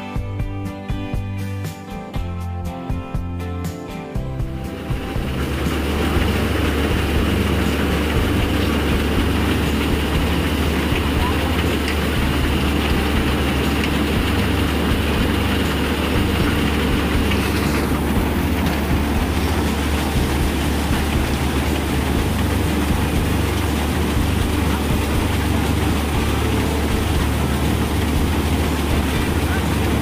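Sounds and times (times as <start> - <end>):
constant low hum: 4.2 - 30.0
crop thresher clattering: 4.7 - 30.0.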